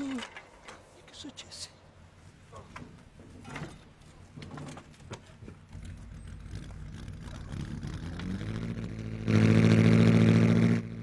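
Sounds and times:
vintage car engine starting: 5.6s - 11.0s.

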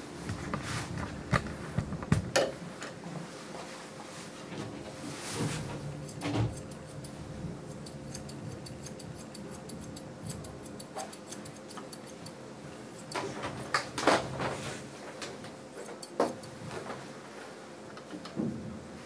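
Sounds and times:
shears snipping: 6.0s - 13.4s.

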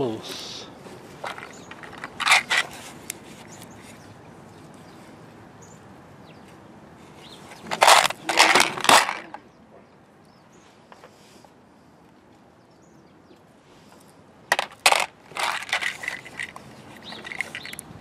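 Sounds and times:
metal fittings rattling in case: 1.2s - 2.8s, 7.7s - 9.4s, 14.5s - 17.8s.

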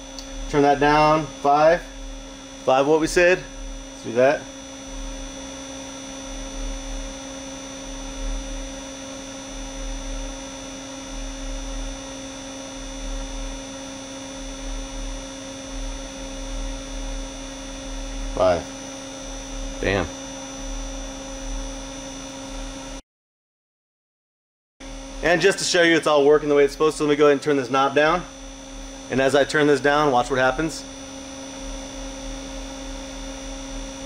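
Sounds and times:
low pulsing throb: 0.0s - 8.8s, 14.4s - 21.9s, 24.9s - 34.0s
amplifier electrical hum: 0.0s - 23.0s, 24.8s - 34.0s.

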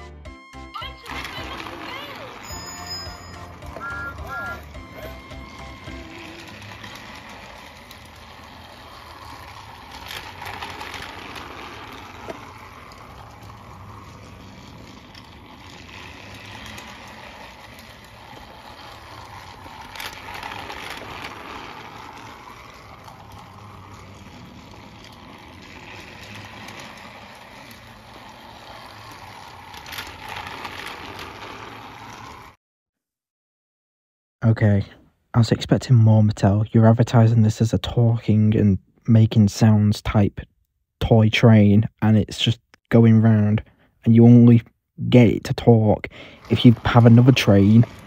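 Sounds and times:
toy train motor and wheels: 0.0s - 32.6s, 42.3s - 48.0s.

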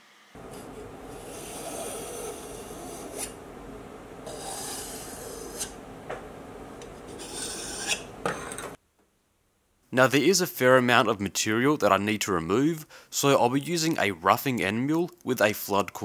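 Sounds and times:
metal point scratching steel: 0.4s - 3.4s, 4.3s - 5.8s, 6.9s - 8.8s.

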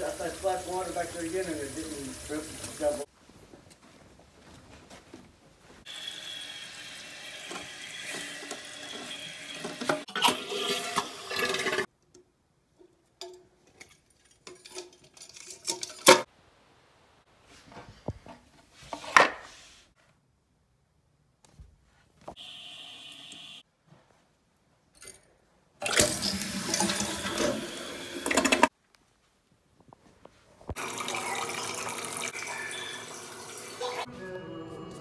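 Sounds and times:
water running: 0.0s - 3.1s, 25.8s - 28.7s, 30.7s - 34.1s.

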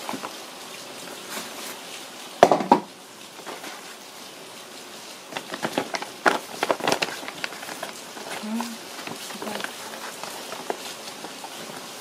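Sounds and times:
paper bag crinkling: 5.3s - 12.0s.

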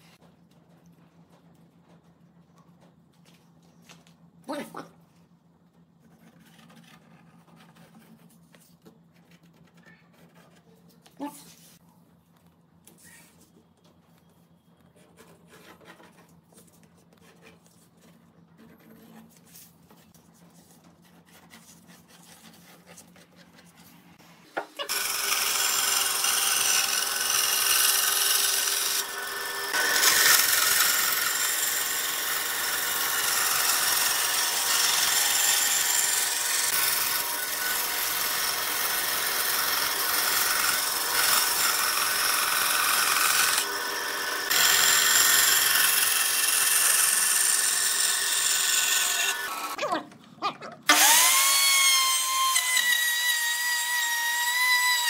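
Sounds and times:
pencil scratching on wood: 6.0s - 10.9s, 14.9s - 24.0s
bandsaw cutting wood: 24.6s - 49.9s, 50.9s - 55.0s.

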